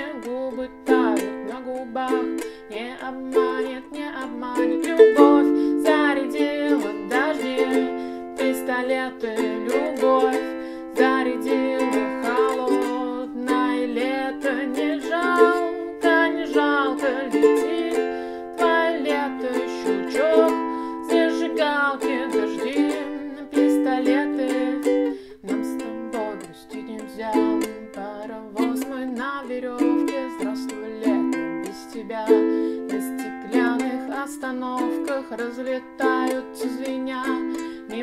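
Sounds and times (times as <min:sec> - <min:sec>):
ukulele strumming: 0:00.0 - 0:38.0
woman singing: 0:00.0 - 0:38.0.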